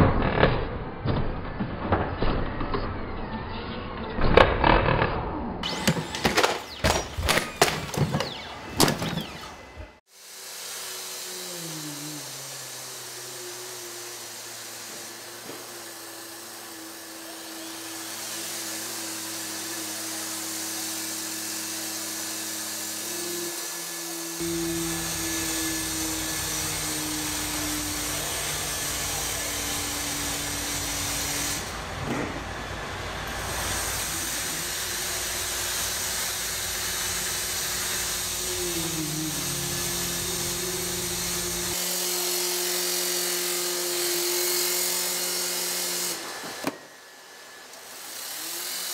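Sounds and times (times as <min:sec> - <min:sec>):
robot mechanical whine and hiss: 0:07.4 - 0:32.4, 0:33.2 - 0:42.3.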